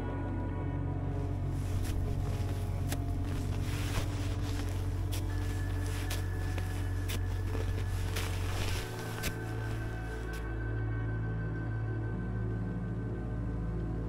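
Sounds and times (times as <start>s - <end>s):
ambient music drone: 0.0s - 14.0s.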